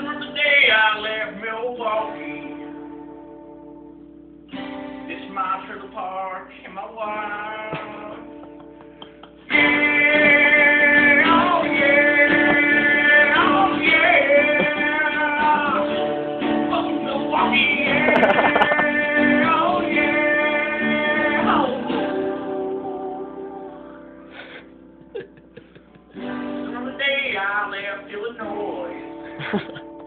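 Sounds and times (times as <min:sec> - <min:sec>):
guitar playing: 0:02.0 - 0:06.2, 0:06.9 - 0:30.0
person singing: 0:09.1 - 0:16.0, 0:16.7 - 0:24.1.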